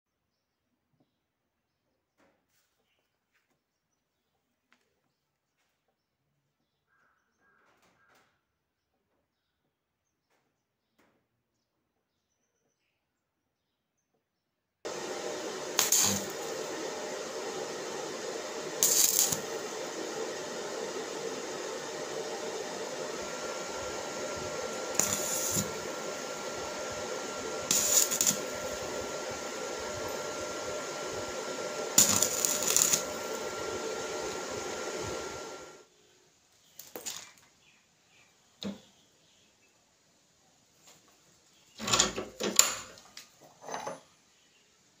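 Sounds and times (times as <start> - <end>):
crackling welding bursts: 14.9 - 35.8, 36.8 - 37.2
steady machine hum: 14.9 - 35.8.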